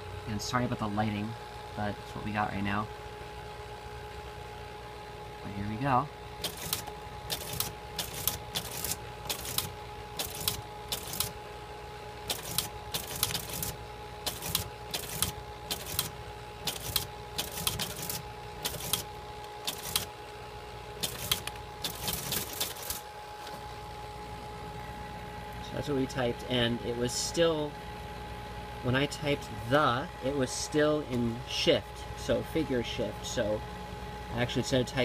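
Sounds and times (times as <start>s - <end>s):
steady machine hum: 0.0s - 35.0s
teletype clacking: 6.4s - 11.4s, 12.3s - 20.1s, 21.0s - 23.0s.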